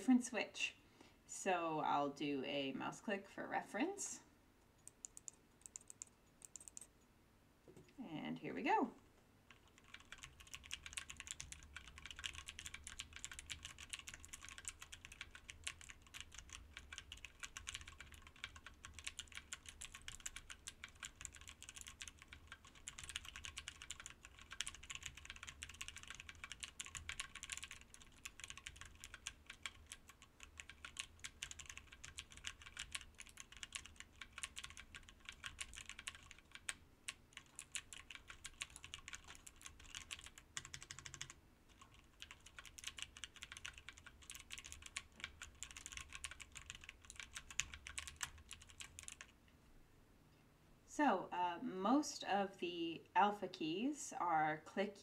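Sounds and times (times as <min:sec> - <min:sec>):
mechanical keyboard typing: 0:04.8 - 0:06.9, 0:09.5 - 0:49.3.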